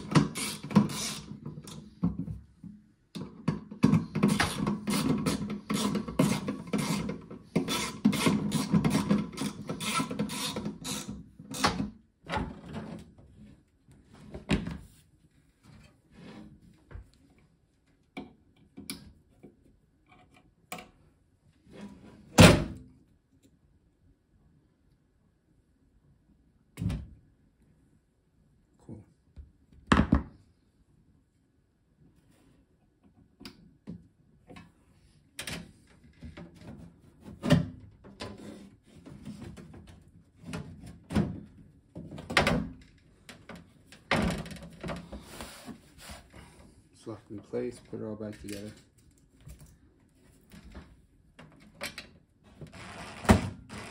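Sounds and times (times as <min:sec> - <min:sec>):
light clicks from handling parts: 0:47.8 - 0:49.2.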